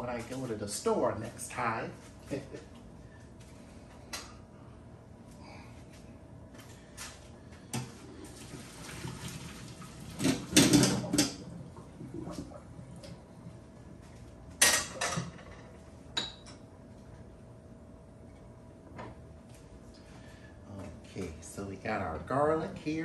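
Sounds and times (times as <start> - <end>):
pots and pans clattering: 10.2 - 11.4.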